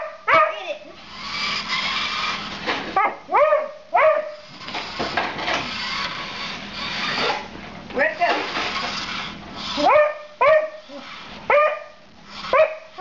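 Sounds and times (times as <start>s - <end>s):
dog barking: 0.0s - 0.6s, 3.0s - 4.4s, 9.8s - 12.9s.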